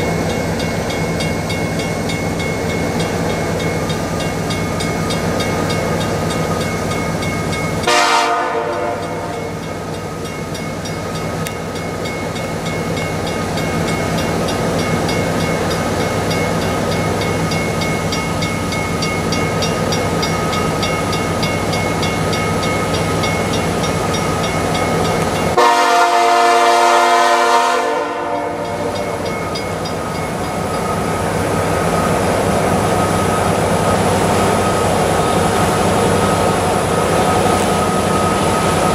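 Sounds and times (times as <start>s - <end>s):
diesel locomotive engine running: 0.0s - 38.9s
locomotive air horn blasts: 7.8s - 9.5s, 25.6s - 29.0s.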